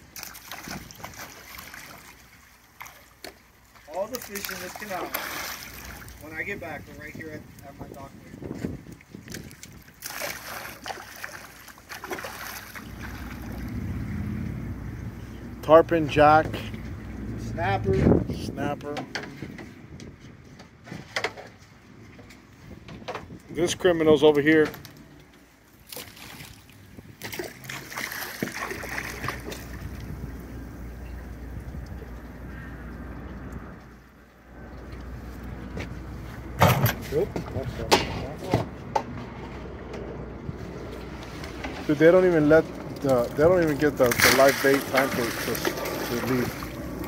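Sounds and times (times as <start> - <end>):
fish splashing and thrashing: 0.0 - 6.4, 8.9 - 15.5, 24.8 - 37.5, 40.5 - 47.0
low motor hum: 11.9 - 20.7, 26.9 - 47.0.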